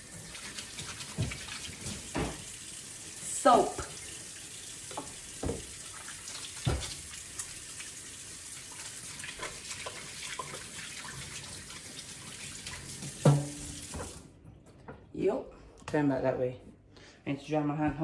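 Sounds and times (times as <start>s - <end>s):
hands washing with soap: 0.0s - 14.4s
tap running into metal sink: 1.0s - 2.5s, 4.9s - 5.8s, 6.6s - 7.1s, 13.0s - 14.2s.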